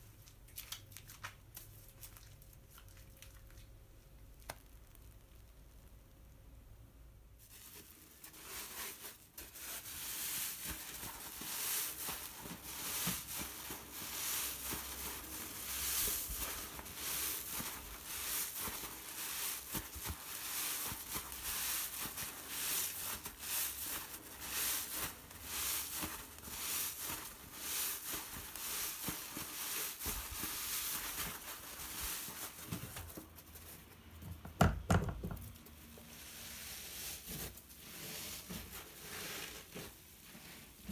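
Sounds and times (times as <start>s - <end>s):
foam sponge rustling: 7.2s - 34.3s, 35.2s - 40.9s.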